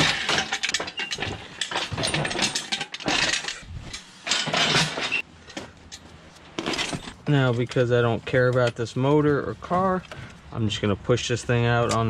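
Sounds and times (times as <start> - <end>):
metal hoist rattling and clanking: 0.0 - 5.2.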